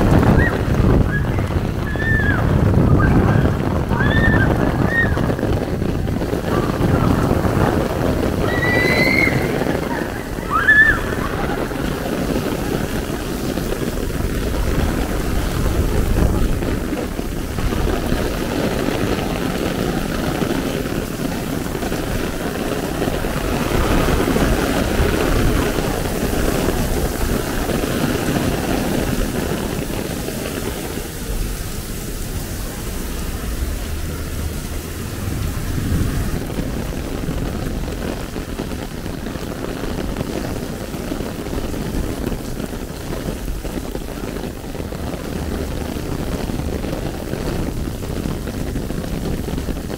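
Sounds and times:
cars swishing through water: 0.0s - 39.3s
heavy rain on an umbrella: 0.0s - 49.9s.

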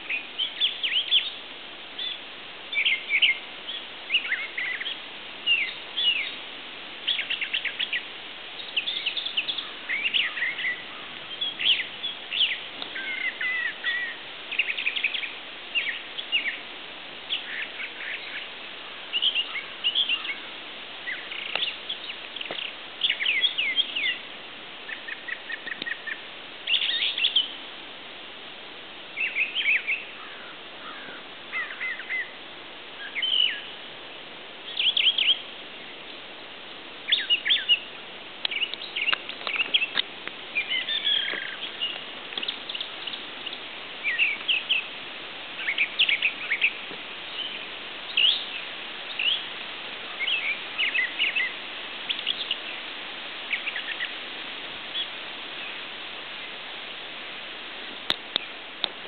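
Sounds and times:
songbirds chirping and whistling: 0.0s - 1.4s, 2.0s - 27.6s, 29.1s - 32.4s, 33.0s - 33.8s, 34.6s - 36.1s, 37.1s - 54.2s, 54.9s - 55.8s
steady background hiss: 0.0s - 59.0s.

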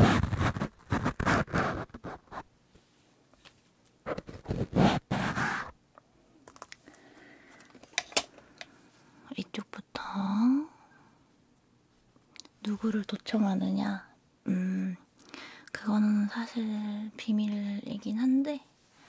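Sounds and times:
fingers scratching microphone windscreen: 0.0s - 2.5s, 4.0s - 5.8s.

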